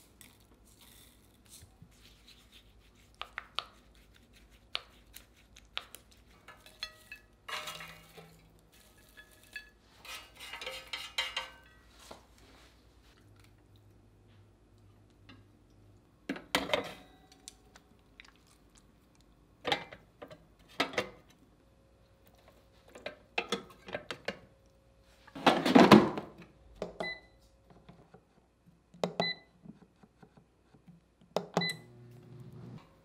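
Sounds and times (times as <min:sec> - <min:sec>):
air fryer beeps: 0:27.0 - 0:27.4, 0:29.2 - 0:29.5, 0:31.6 - 0:32.1.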